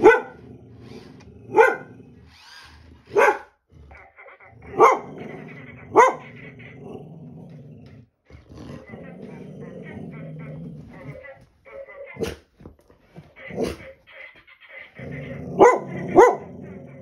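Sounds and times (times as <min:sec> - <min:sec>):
dog barking: 0:00.0 - 0:00.4, 0:01.5 - 0:01.9, 0:03.1 - 0:05.1, 0:05.9 - 0:06.3, 0:15.5 - 0:16.5.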